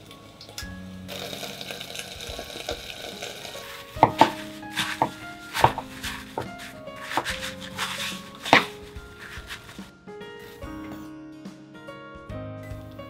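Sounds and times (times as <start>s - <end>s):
light background music: 0.0s - 13.0s
sharp crackles and knocks: 1.9s - 9.9s
paper towel crinkling: 3.5s - 9.9s.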